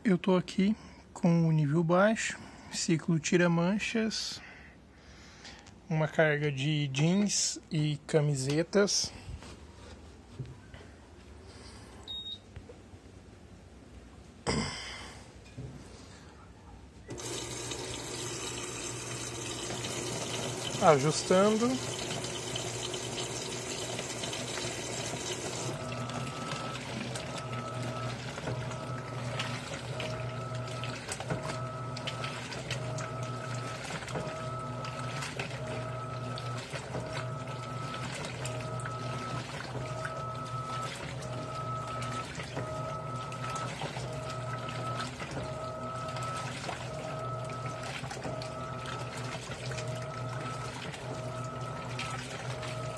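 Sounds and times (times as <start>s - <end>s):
low hum of inlet valve: 12.0s - 12.5s
high beep: 12.1s - 12.4s
washing machine motor humming: 17.0s - 52.9s
water rushing into drum: 17.1s - 52.9s.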